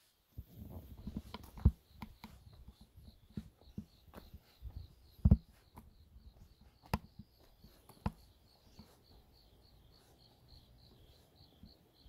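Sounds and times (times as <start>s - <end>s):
soft thumps: 0.5s - 9.0s
cricket chirping: 0.6s - 12.0s.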